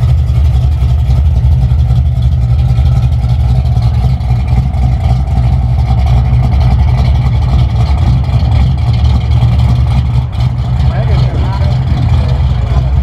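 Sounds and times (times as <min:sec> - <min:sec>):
car engine idling loudly: 0:00.0 - 0:13.0.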